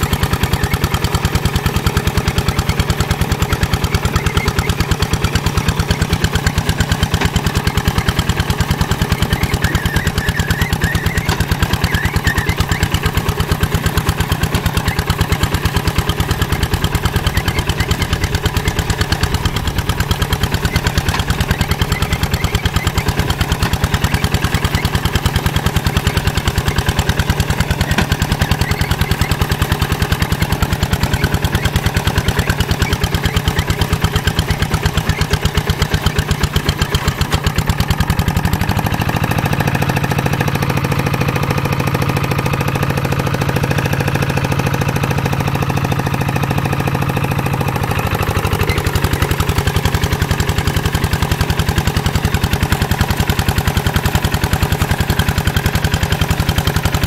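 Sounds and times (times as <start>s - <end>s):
diesel engine chugging: 0.0s - 57.0s.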